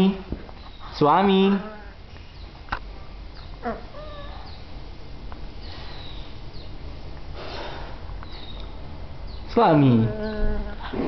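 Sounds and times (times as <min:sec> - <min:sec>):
puppy whining: 0:01.5 - 0:02.0, 0:03.4 - 0:04.6, 0:09.8 - 0:11.0.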